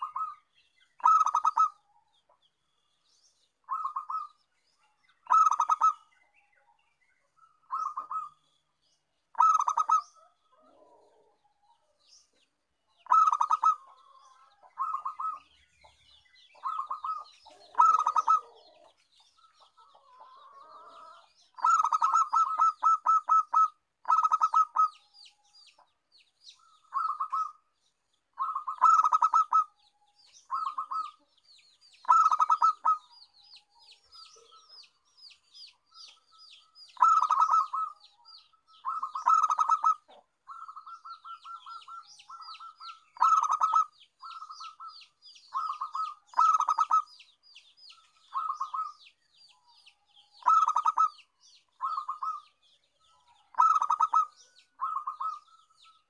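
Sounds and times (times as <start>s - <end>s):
dove cooing: 0.0s - 0.4s, 1.0s - 1.8s, 3.7s - 4.4s, 5.3s - 6.1s, 7.7s - 8.4s, 9.3s - 11.4s, 13.0s - 15.5s, 16.5s - 25.0s, 26.6s - 27.6s, 28.4s - 29.8s, 30.4s - 31.3s, 32.0s - 33.2s, 37.0s - 47.1s, 48.2s - 49.0s, 50.4s - 51.2s, 51.8s - 52.6s, 53.3s - 56.0s
small bird chirping: 0.0s - 56.0s.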